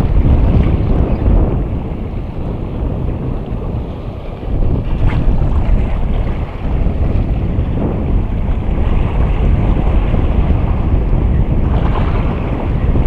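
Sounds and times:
sea washing over rocks: 0:00.0 - 0:13.0
wind buffeting microphone: 0:00.0 - 0:13.0.

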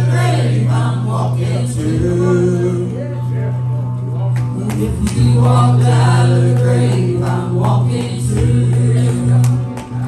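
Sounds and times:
singing: 0:04.4 - 0:10.0.

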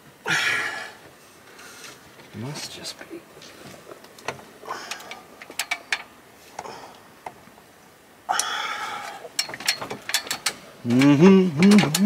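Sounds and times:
metal hardware clicks and taps: 0:04.1 - 0:07.4, 0:09.3 - 0:12.0.

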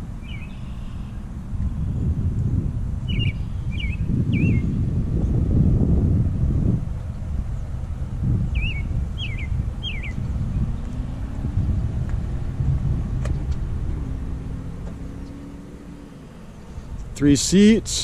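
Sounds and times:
low outdoor rumble: 0:00.0 - 0:18.0
bird chirping: 0:00.1 - 0:01.2, 0:03.1 - 0:04.8, 0:08.5 - 0:11.5.

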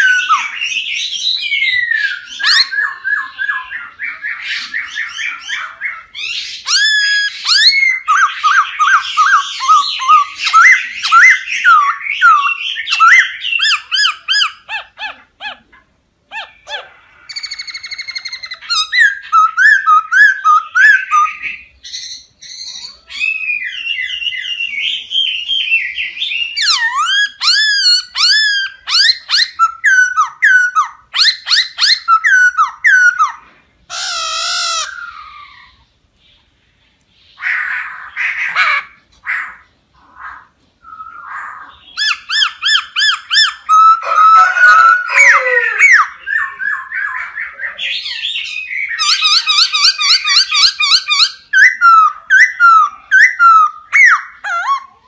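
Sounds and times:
bird singing whistled notes: 0:17.2 - 0:33.4, 0:40.8 - 0:44.6.

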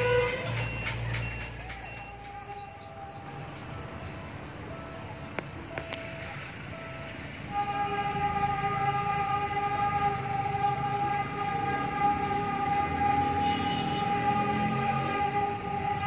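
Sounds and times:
train horn long note: 0:07.5 - 0:16.0.

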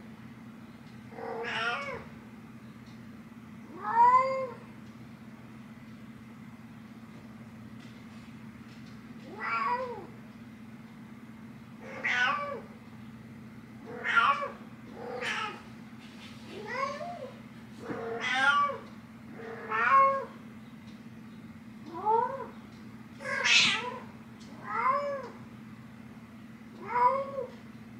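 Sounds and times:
cat meowing: 0:01.2 - 0:02.1, 0:09.3 - 0:10.1, 0:11.8 - 0:12.7, 0:13.8 - 0:15.6, 0:17.9 - 0:18.8, 0:19.4 - 0:20.3, 0:23.2 - 0:25.4.

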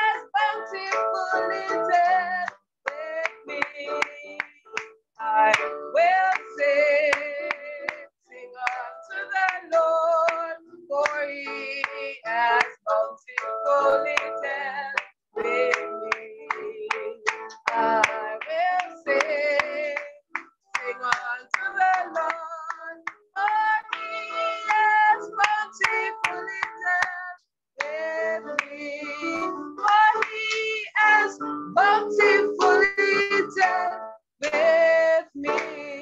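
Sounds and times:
woman singing: 0:00.0 - 0:04.6, 0:05.2 - 0:36.0
hands clapping in rhythm: 0:00.0 - 0:36.0.

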